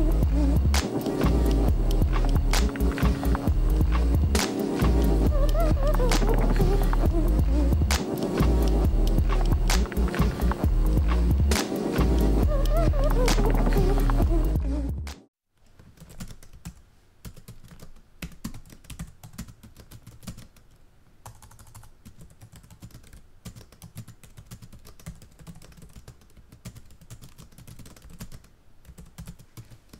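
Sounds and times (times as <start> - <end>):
keyboard typing clicks: 0.0 - 14.4.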